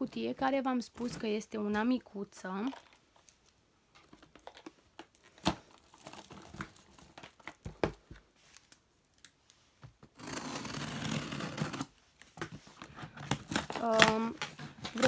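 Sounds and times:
packaging crinkling: 0:02.7 - 0:07.9
cardboard tearing: 0:10.1 - 0:11.9, 0:13.1 - 0:15.0.

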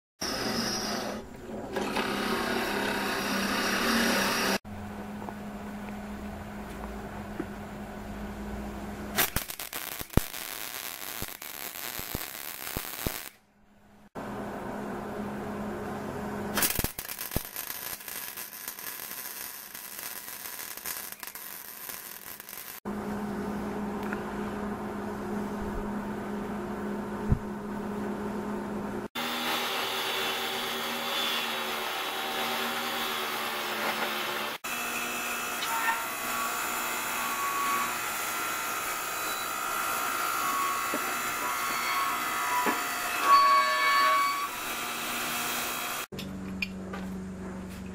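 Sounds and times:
electric saw cutting metal: 0:00.2 - 0:04.6, 0:29.2 - 0:46.1
arc welding crackling and hissing: 0:09.2 - 0:13.4, 0:16.5 - 0:22.8.

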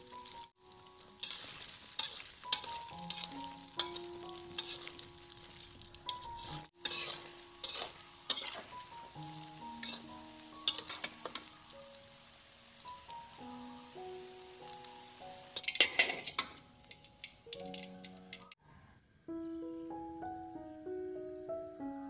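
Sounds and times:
meatballs sizzling in hot oil: 0:00.0 - 0:18.6
soft background music: 0:00.0 - 0:18.6, 0:19.3 - 0:22.0
metal spatula scraping pan: 0:01.2 - 0:05.1, 0:06.1 - 0:09.0, 0:09.8 - 0:11.4, 0:15.6 - 0:16.5.

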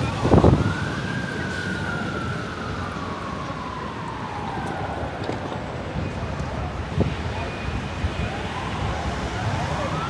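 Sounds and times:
siren wailing: 0:00.0 - 0:05.5
road noise from moving car: 0:00.0 - 0:10.0.

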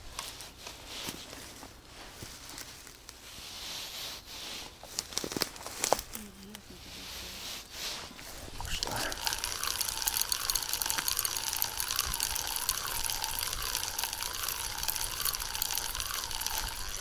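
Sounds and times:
fishing reel whirring: 0:08.3 - 0:17.0
fine clicking of reel: 0:08.5 - 0:17.0.

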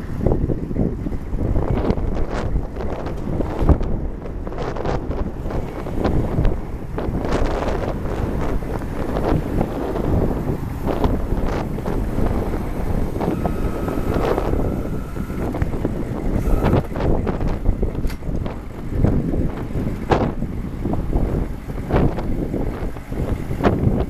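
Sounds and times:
wind buffeting microphone: 0:00.0 - 0:24.0
faint steady whine: 0:00.5 - 0:24.0.

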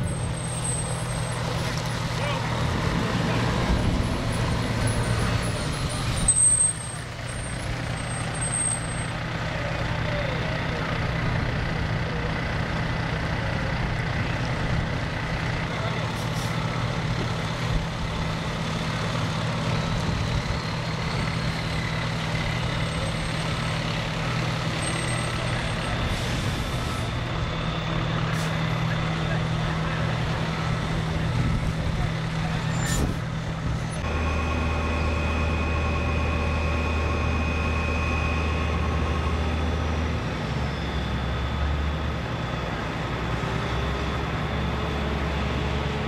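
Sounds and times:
fire truck diesel engines: 0:00.0 - 0:46.0
air brakes hissing: 0:24.8 - 0:27.2.

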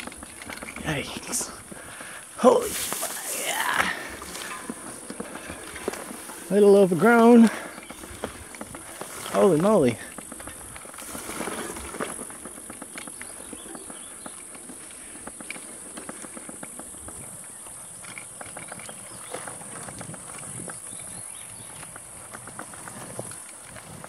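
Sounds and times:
grass stalks brushing: 0:00.0 - 0:12.9
bike rattles and clicks: 0:00.0 - 0:24.0.

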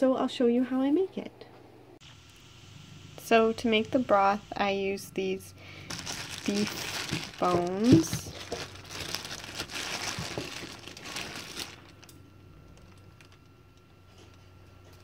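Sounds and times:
plastic bag crinkling: 0:05.7 - 0:13.5.

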